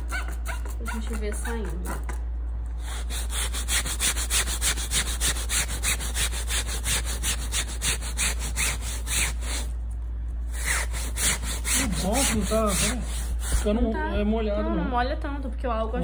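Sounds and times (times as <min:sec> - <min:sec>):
hand brush scrubbing fabric: 0:02.8 - 0:09.7, 0:10.5 - 0:14.0.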